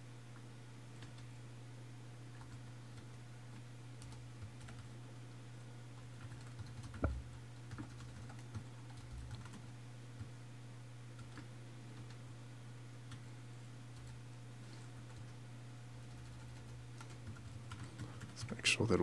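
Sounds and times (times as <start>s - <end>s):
low electrical hum: 0.0s - 19.0s
typing on keyboard: 1.0s - 1.3s, 4.0s - 4.9s, 6.2s - 9.6s, 11.2s - 12.2s, 16.0s - 18.6s.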